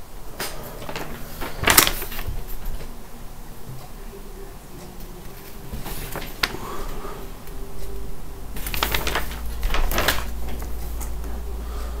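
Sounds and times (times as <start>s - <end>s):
paper map rustling and crinkling: 0.4s - 3.0s, 5.2s - 7.2s, 7.8s - 11.2s.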